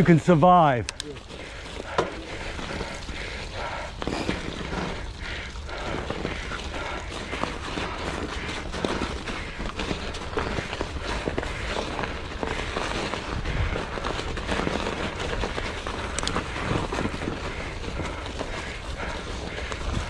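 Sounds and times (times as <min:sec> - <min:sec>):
bike clicks and rattles: 0:00.0 - 0:20.0
bike tyres rumbling on trail: 0:00.0 - 0:20.0.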